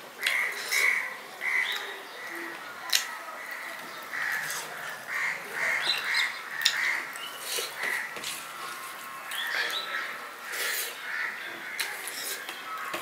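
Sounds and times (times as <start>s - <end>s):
crows cawing: 0.2s - 2.4s, 3.4s - 13.0s
wet eating clicks: 1.7s - 3.1s, 5.8s - 7.9s.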